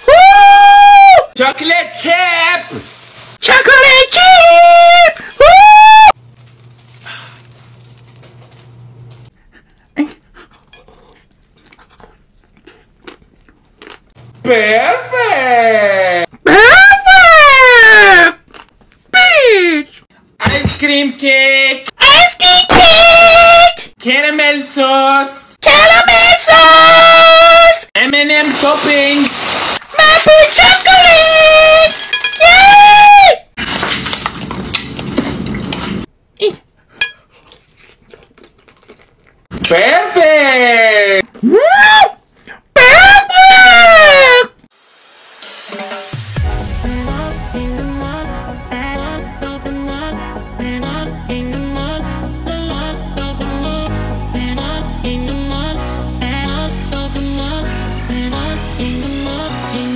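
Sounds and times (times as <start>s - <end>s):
loud high-pitched cry: 5.4s - 6.1s
wet mouth chewing sounds: 9.6s - 14.2s, 37.3s - 39.5s.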